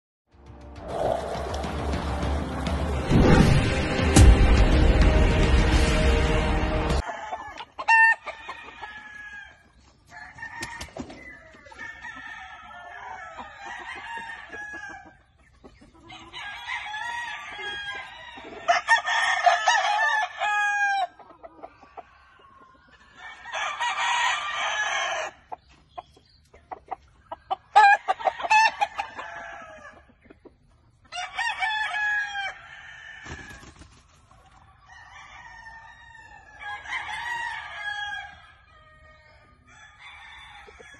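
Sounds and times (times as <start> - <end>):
roosters crowing: 6.5 - 25.6, 27.5 - 30.2, 31.0 - 40.9
chicken clucking: 7.0 - 19.3, 21.0 - 31.6.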